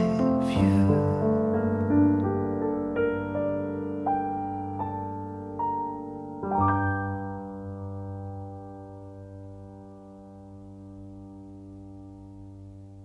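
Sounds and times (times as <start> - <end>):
slow piano piece: 0.0 - 13.0.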